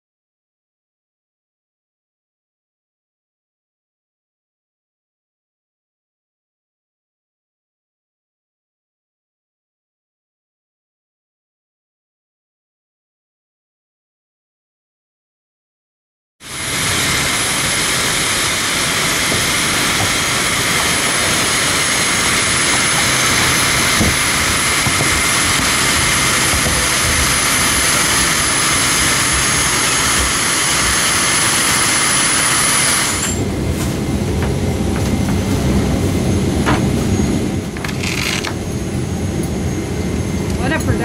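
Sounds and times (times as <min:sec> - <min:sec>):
jet engine rushing noise: 0:16.4 - 0:41.0
thin high whine: 0:16.4 - 0:41.0.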